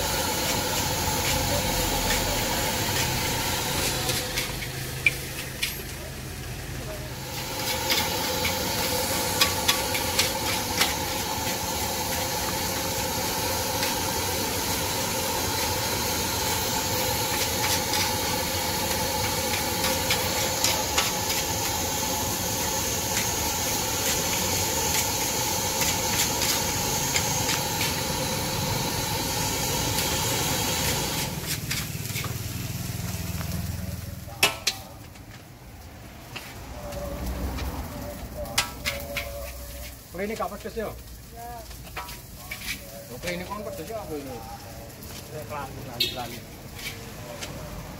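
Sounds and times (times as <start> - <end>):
food sizzling in a wok: 0.0 - 47.9
metal spatula scraping a wok: 0.2 - 5.9, 7.2 - 32.6, 38.5 - 40.1, 41.7 - 43.7, 46.0 - 47.3.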